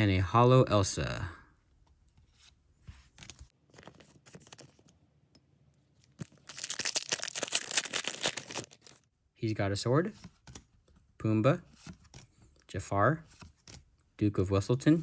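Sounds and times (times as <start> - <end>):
trading cards clicking and rustling: 3.1 - 5.0, 6.0 - 9.0
foil wrapper tearing open: 6.0 - 9.0.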